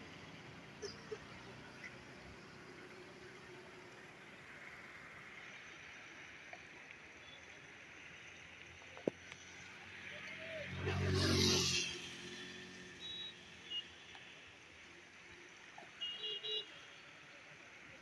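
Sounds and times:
vehicle passing by: 9.7s - 13.0s.

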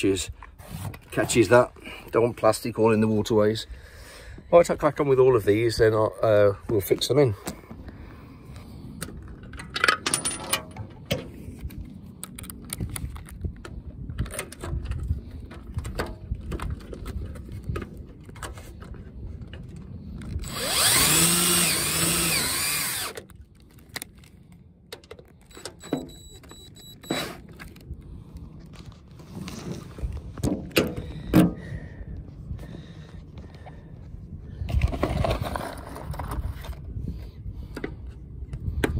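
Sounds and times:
cordless drill boring through plastic: 20.2s - 23.3s.

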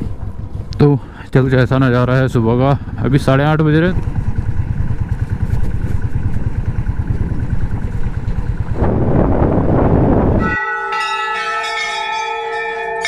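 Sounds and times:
motorcycle engine: 0.0s - 10.5s
wind noise: 4.0s - 10.6s
metal bells ringing: 10.4s - 13.0s.

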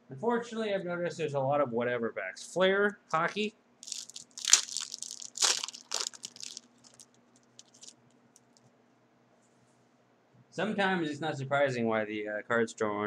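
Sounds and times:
wrapper tearing and crinkling: 3.8s - 7.9s.

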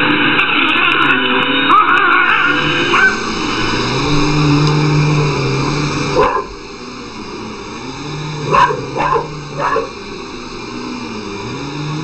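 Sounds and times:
upright vacuum cleaner humming: 0.0s - 12.0s
dog barking: 2.9s - 3.2s, 6.2s - 6.6s, 8.5s - 10.0s.

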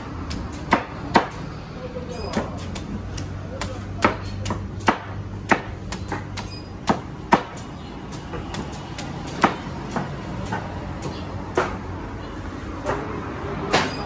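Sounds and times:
machete chopping coconut husk: 0.0s - 1.6s, 2.2s - 11.8s.

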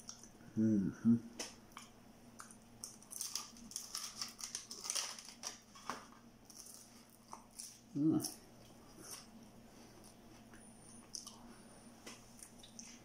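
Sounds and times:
crunching and chewing crisp pastry: 1.8s - 13.0s
paper sleeve crinkling: 3.1s - 7.0s.

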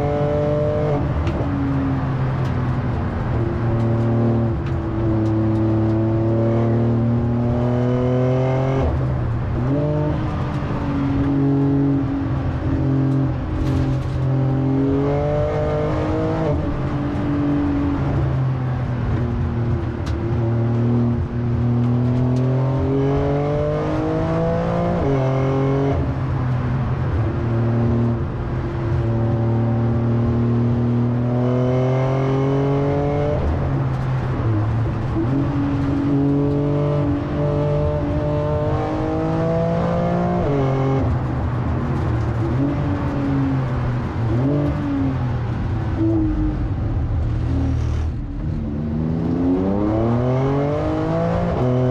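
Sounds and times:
car engine accelerating: 0.0s - 51.9s.

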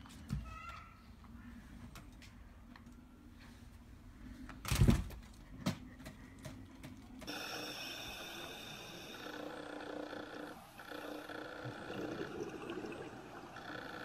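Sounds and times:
steady hiss: 7.3s - 9.5s.

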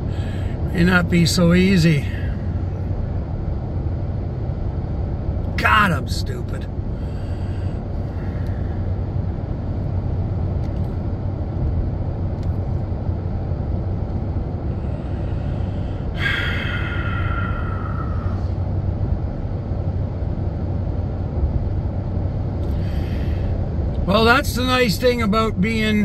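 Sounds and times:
truck engine and road noise: 0.0s - 26.0s.

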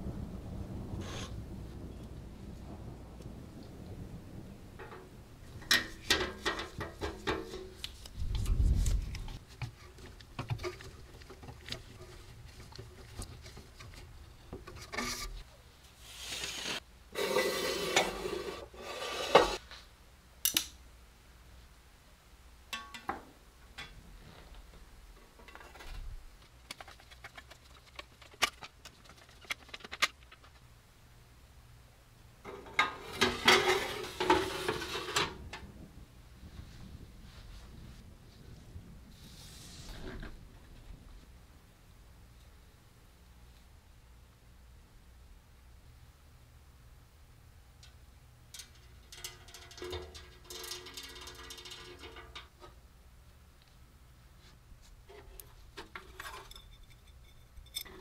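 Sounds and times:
metal scraping rub: 16.0s - 19.6s, 32.5s - 35.4s
sheet metal clinks and taps: 47.8s - 52.5s.

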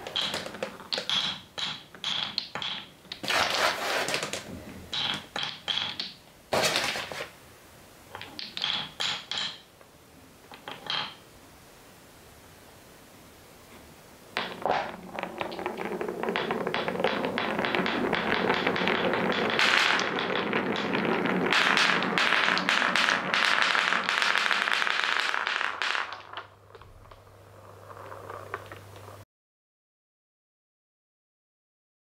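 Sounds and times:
wooden balls clattering down run: 0.0s - 7.3s, 8.1s - 9.7s, 10.5s - 11.2s, 14.3s - 29.2s.

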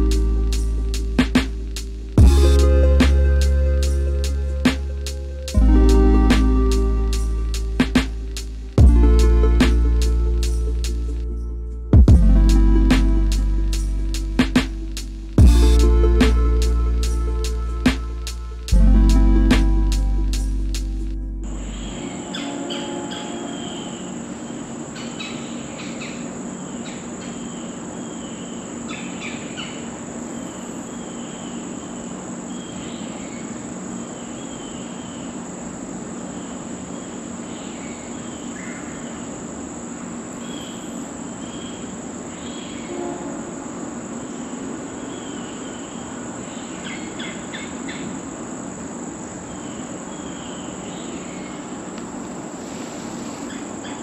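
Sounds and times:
insect chorus drone: 0.0s - 54.0s
short chirping calls: 21.5s - 35.4s, 44.1s - 52.0s, 53.0s - 54.0s.

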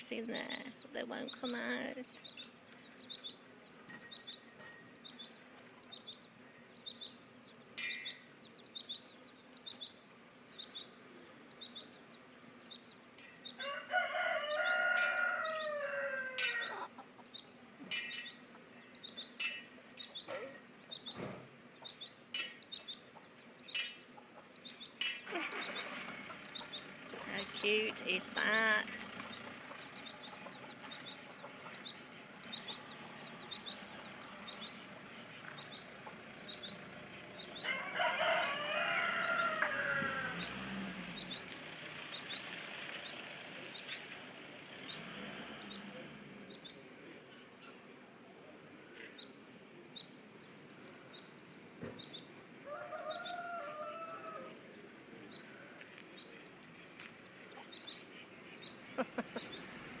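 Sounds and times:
baby chicks peeping: 0.0s - 47.9s, 48.9s - 60.0s
rooster crowing: 13.6s - 16.9s, 37.6s - 40.6s, 52.6s - 54.6s.

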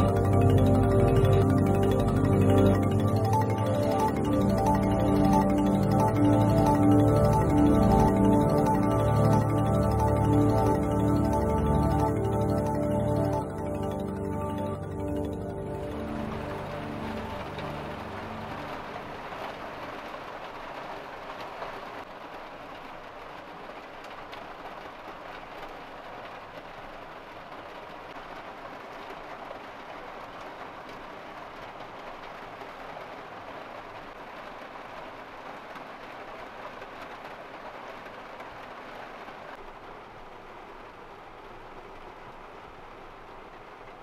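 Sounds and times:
music: 0.0s - 19.2s.

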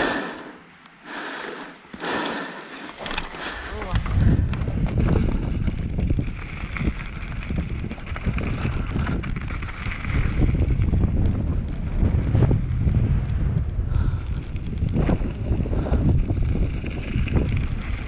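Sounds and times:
bike clattering over bumps: 1.8s - 13.0s, 13.6s - 18.0s
wind rumbling on microphone: 2.0s - 18.0s.

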